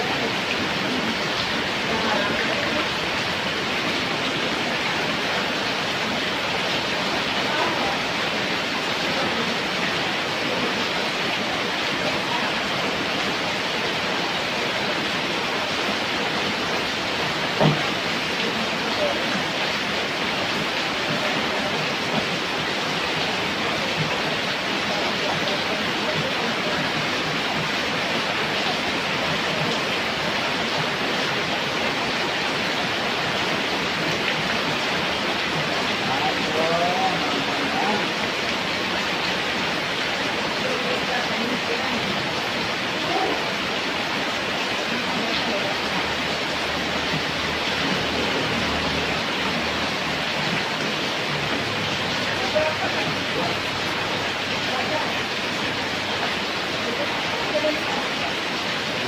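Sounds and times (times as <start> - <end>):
heavy rain pouring: 0.0 - 59.0
motorcycle passing on wet road: 45.5 - 56.2.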